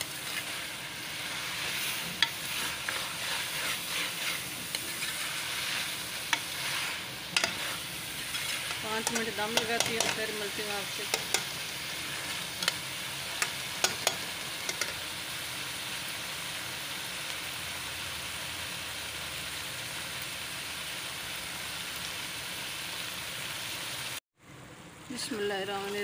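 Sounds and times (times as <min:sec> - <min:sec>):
curry sizzling in oil: 0:00.0 - 0:24.2, 0:25.2 - 0:26.0
spatula tapping on pan: 0:13.4 - 0:15.0.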